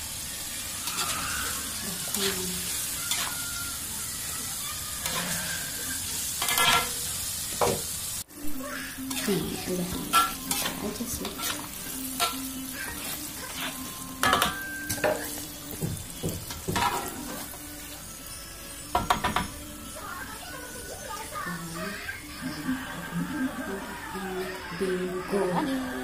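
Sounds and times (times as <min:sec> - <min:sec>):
food sizzling in hot oil: 0:00.0 - 0:26.0
metal spatula scraping a wok: 0:00.5 - 0:03.9, 0:05.0 - 0:07.4, 0:09.0 - 0:18.2.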